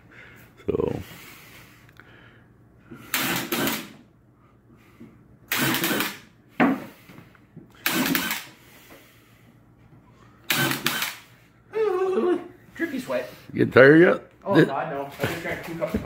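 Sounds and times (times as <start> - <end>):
cordless drill driving screws: 5.5 - 6.1, 7.8 - 8.5, 10.5 - 11.2.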